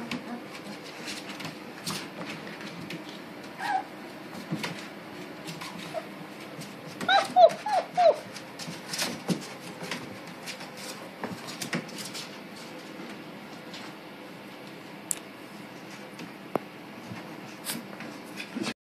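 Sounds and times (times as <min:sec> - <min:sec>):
puppies whimpering: 0:03.6 - 0:03.9, 0:05.8 - 0:06.2, 0:07.0 - 0:08.4.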